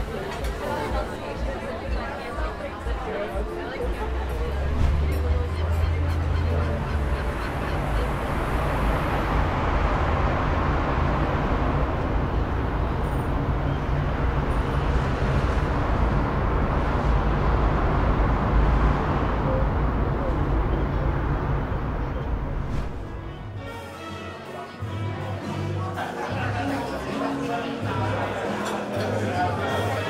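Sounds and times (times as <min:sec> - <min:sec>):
outdoor rushing noise with low rumble: 0:03.8 - 0:23.7.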